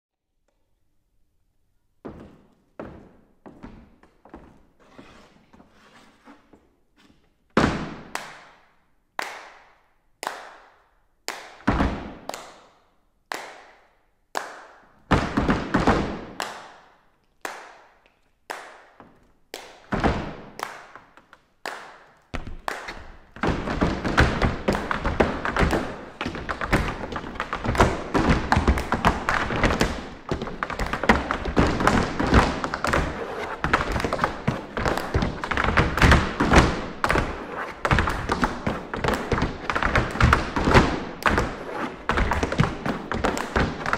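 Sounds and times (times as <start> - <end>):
tap shoes striking hard floor: 22.3 - 43.9.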